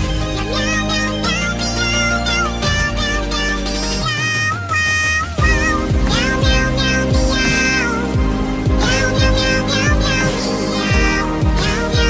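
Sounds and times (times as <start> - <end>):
electronic music: 0.0 - 12.0
gliding high lead melody: 0.0 - 12.0
deep kick drum beat: 5.4 - 12.0.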